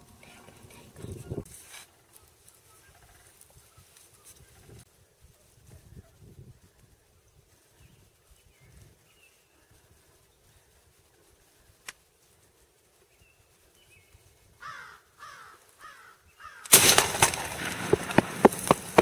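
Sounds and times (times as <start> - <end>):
shotgun blast: 16.7 - 18.4
loud rustling: 16.7 - 19.0.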